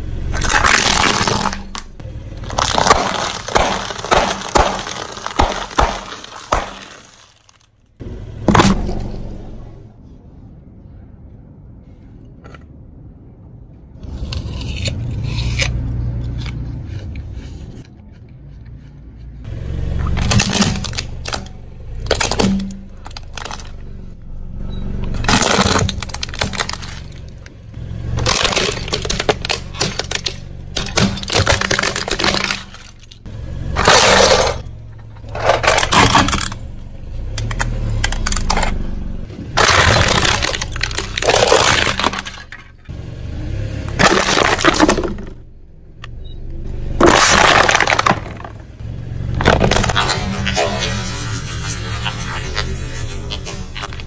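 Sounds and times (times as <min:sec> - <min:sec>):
car engine hum: 0:00.0 - 0:11.8, 0:12.8 - 0:54.0
tyres crushing brittle objects: 0:00.3 - 0:09.3, 0:20.0 - 0:24.0, 0:25.1 - 0:36.6, 0:39.4 - 0:42.9, 0:43.9 - 0:45.4, 0:47.0 - 0:48.8, 0:49.4 - 0:54.0.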